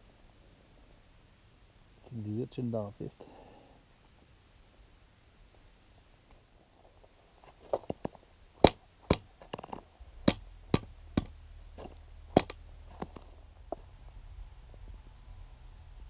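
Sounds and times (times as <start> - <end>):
sharp knocks and clicks: 7.8 - 13.8.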